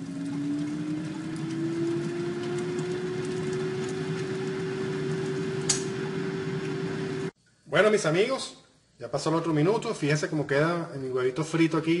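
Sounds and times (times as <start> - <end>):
air fryer fan hum: 0.0 - 7.3
sharp pop: 5.7 - 6.0.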